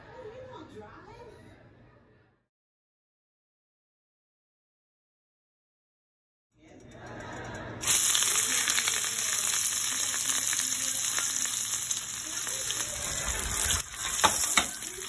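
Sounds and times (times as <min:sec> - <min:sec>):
fish sizzling in hot oil: 0:07.8 - 0:15.0.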